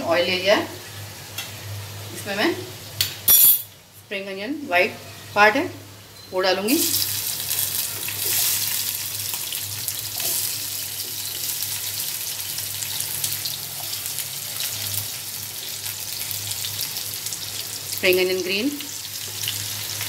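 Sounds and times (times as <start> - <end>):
onions sizzling in hot oil: 5.3 - 20.0.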